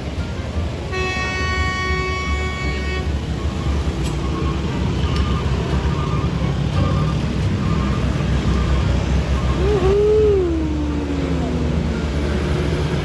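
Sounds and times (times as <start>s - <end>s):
scooter and truck engines rumbling: 0.0s - 13.0s
vehicle horn: 0.9s - 3.1s.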